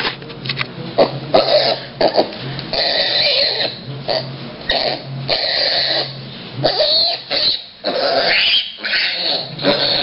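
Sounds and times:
piglet raspy cries: 0:02.7 - 0:03.9, 0:04.7 - 0:10.0.

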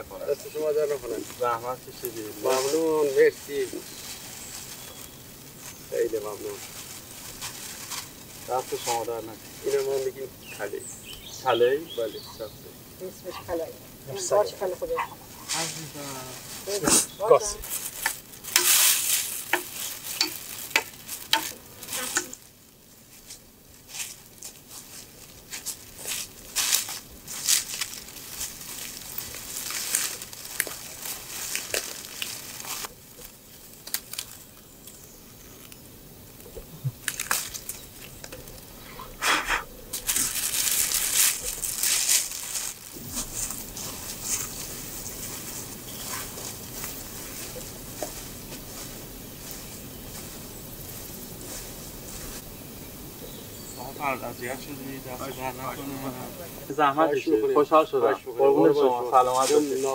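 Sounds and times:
footsteps through dry leaves: 0:00.4 - 0:12.3, 0:14.9 - 0:35.1, 0:37.0 - 0:38.2, 0:39.9 - 0:52.6, 0:59.1 - 0:59.9.

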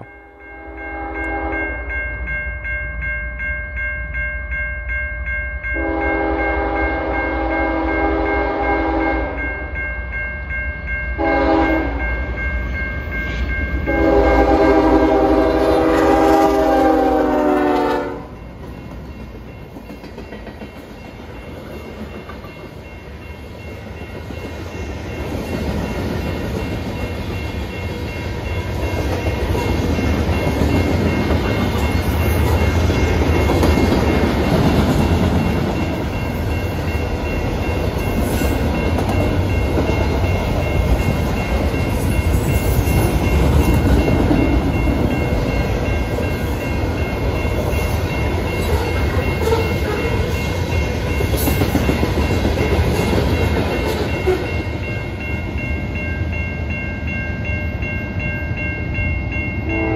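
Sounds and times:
locomotive horn blasts: 0:00.6 - 0:01.7, 0:05.8 - 0:09.4, 0:11.2 - 0:12.0, 0:13.9 - 0:18.4, 0:59.7 - 0:59.9
train rumbling past: 0:05.6 - 0:59.9.

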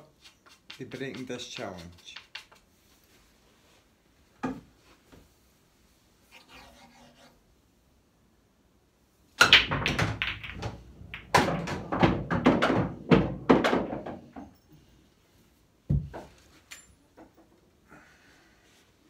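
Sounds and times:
cue striking ball: 0:09.4 - 0:14.1
pool balls clacking: 0:09.4 - 0:14.6.

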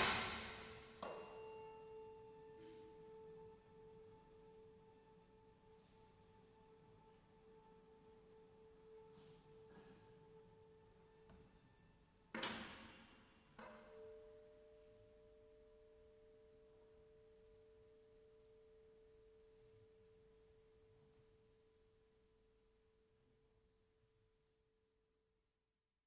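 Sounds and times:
sharp bright struck attack: 0:00.0 - 0:02.8.

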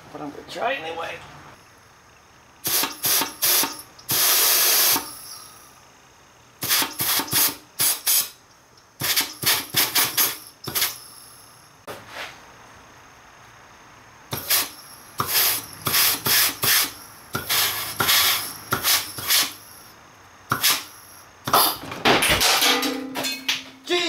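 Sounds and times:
air blow gun hissing blasts: 0:02.6 - 0:05.1, 0:06.6 - 0:08.4, 0:09.0 - 0:11.0, 0:14.3 - 0:19.7, 0:20.5 - 0:21.8.

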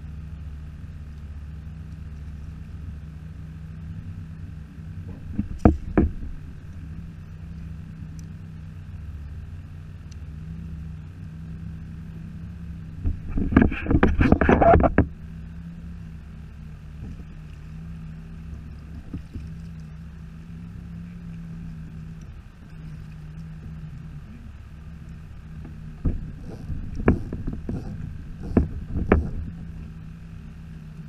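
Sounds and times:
low hum: 0:00.0 - 0:31.0
water: 0:00.0 - 0:31.0
wind: 0:00.0 - 0:31.0
fishing gear knocking on plastic hull: 0:05.3 - 0:06.4, 0:26.0 - 0:29.6.

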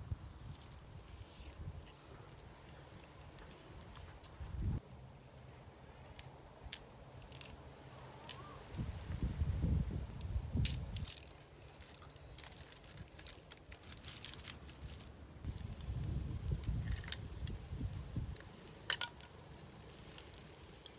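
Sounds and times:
crunching handling noises: 0:10.2 - 0:15.2.

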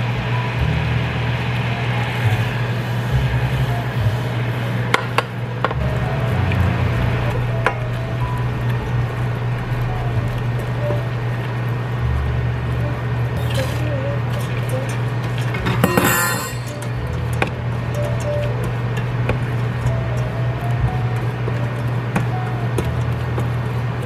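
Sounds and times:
background music with bass line: 0:05.6 - 0:14.9.

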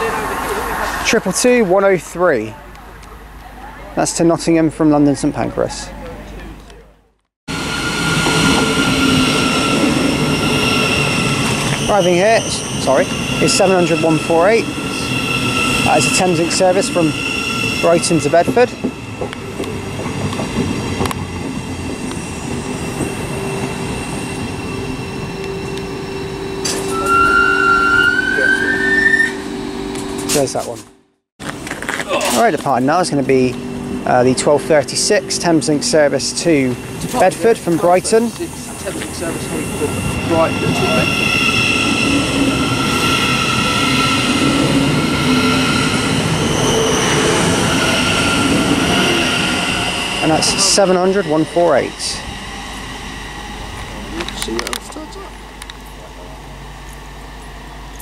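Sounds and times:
electric train humming: 0:07.5 - 0:58.0
high rising tone: 0:20.8 - 0:31.0.

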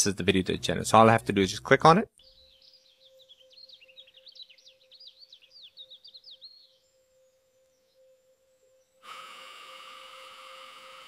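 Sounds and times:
faint steady hum: 0:09.0 - 0:11.0.

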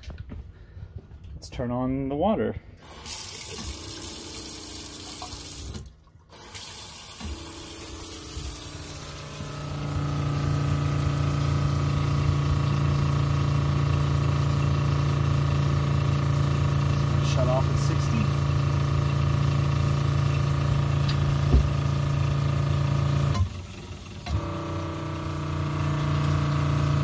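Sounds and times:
water running from faucet: 0:02.8 - 0:23.3
water pump motor hum: 0:02.8 - 0:27.0.

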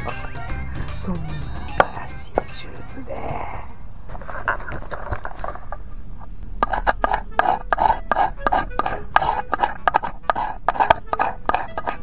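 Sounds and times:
fire steel scraping rod: 0:06.6 - 0:12.0.

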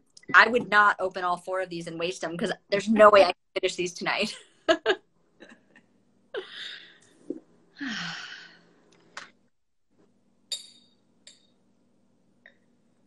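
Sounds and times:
soft breathy sighs: 0:07.8 - 0:08.7.

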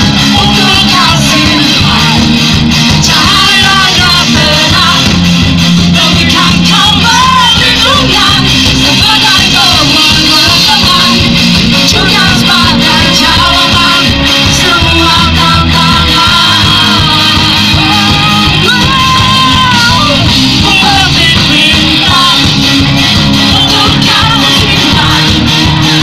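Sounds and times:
electric guitars: 0:00.0 - 0:26.0
lead singer singing: 0:00.0 - 0:26.0
live rock band playing: 0:00.0 - 0:26.0.

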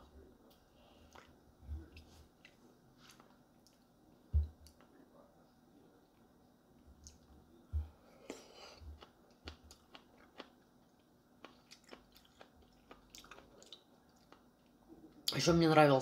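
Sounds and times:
person chewing food: 0:01.0 - 0:04.8, 0:07.0 - 0:14.8.

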